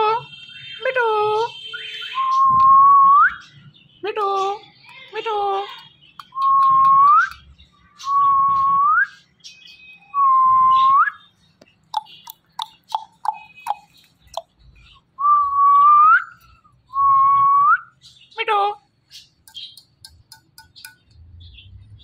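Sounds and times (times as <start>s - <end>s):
parrot chirps and clicks: 4.1s - 7.7s, 11.6s - 14.7s, 19.2s - 21.3s.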